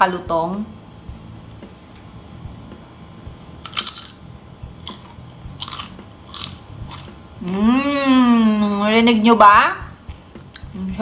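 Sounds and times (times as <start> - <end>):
crunching and chewing: 3.6 - 4.2, 4.8 - 7.2.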